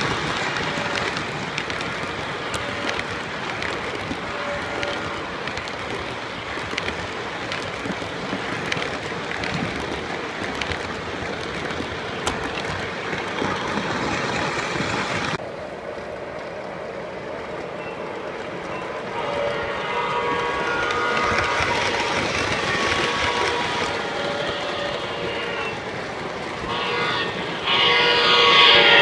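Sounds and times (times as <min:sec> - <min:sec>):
clicks over rail joints: 0:00.0 - 0:15.4
model train wheels rumbling: 0:00.0 - 0:29.0.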